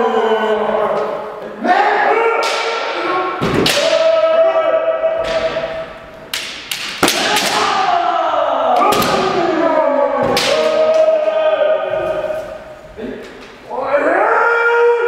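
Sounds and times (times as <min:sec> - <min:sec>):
people shouting drawn-out cries: 0:00.0 - 0:06.1, 0:07.0 - 0:12.8, 0:13.6 - 0:15.0
bamboo sword strikes cracking: 0:06.3 - 0:07.8.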